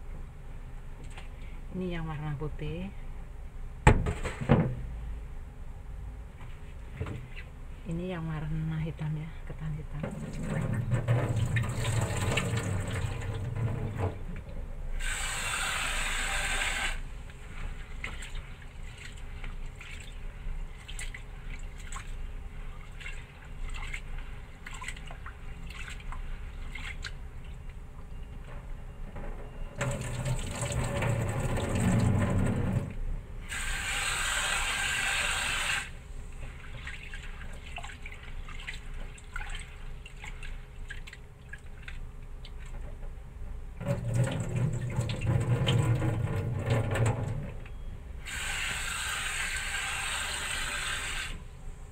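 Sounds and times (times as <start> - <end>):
hands washing rice in water: 17.6 - 27.7, 36.4 - 42.8.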